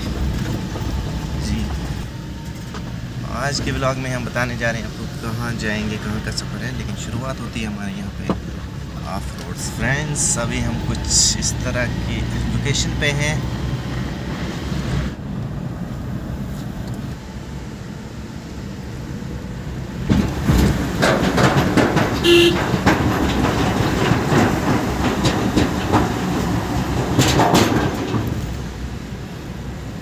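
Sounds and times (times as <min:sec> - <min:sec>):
wheels rattling over bridge deck: 0:00.0 - 0:14.3, 0:19.7 - 0:30.0
engine and tyres rumbling: 0:00.0 - 0:30.0.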